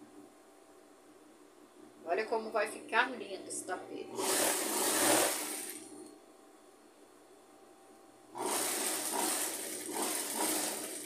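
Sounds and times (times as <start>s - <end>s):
sewing machine stitching: 4.1s - 5.9s, 8.4s - 11.0s.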